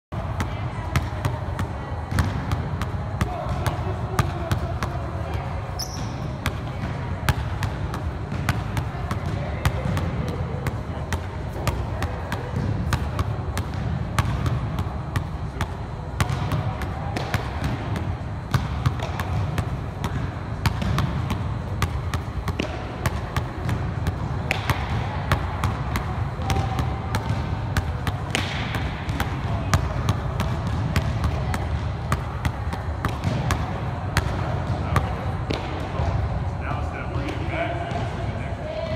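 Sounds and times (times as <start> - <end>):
basketball bouncing on hardwood: 24.5 - 34.8.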